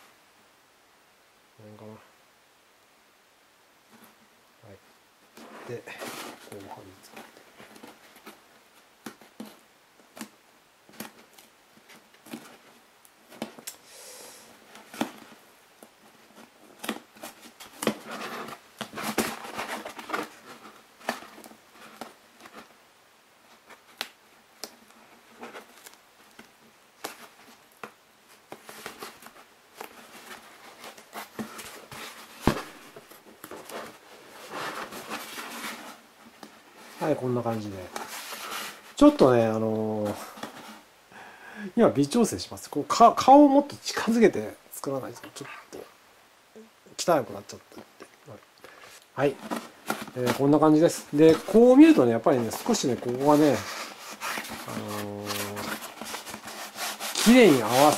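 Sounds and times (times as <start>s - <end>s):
foam rustling: 5.4s - 8.4s, 28.3s - 40.9s, 48.7s - 57.9s.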